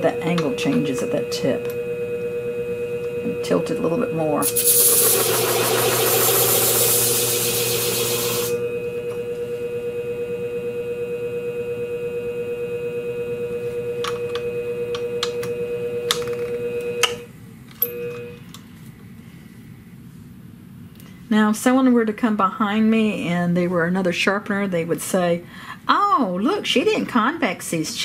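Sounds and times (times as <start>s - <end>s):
blade grinding on hone: 0.0s - 9.0s
motor humming: 0.0s - 18.7s
brief tone: 6.8s - 18.5s.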